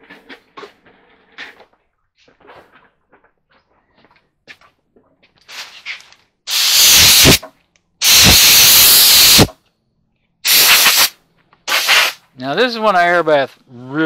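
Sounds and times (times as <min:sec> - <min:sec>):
air gun hissing blasts: 0:06.5 - 0:07.4, 0:08.0 - 0:09.6, 0:10.4 - 0:12.2.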